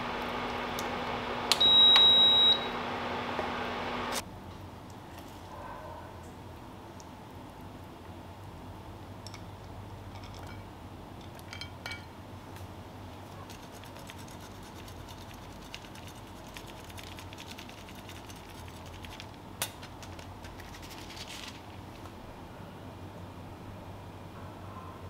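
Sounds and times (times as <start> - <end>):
faint steady hum: 0.0 - 25.0
cheese grating: 13.4 - 19.3, 20.0 - 21.6.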